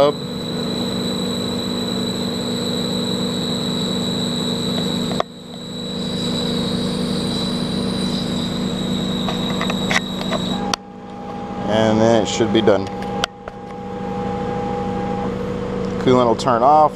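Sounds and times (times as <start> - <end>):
coolant hiss: 0.0 - 10.8
lathe motor hum: 0.0 - 15.8
high whine: 0.0 - 16.9.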